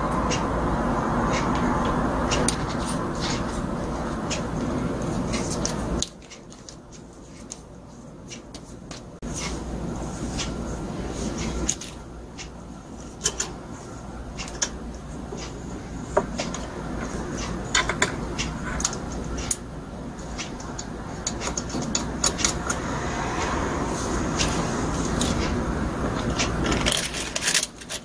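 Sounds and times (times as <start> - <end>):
steady low hum: 0.0 - 28.0
metal and plastic parts clicking: 26.2 - 28.0.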